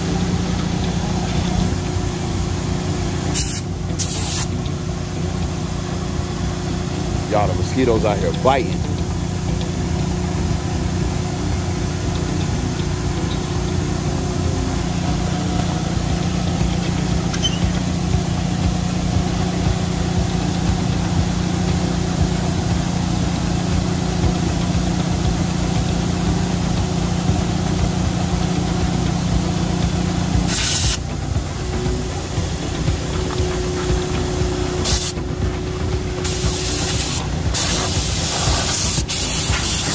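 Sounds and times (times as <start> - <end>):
motor humming: 0.0 - 39.9
spray hiss: 3.3 - 4.6, 30.4 - 31.1, 34.8 - 35.2, 36.2 - 39.9.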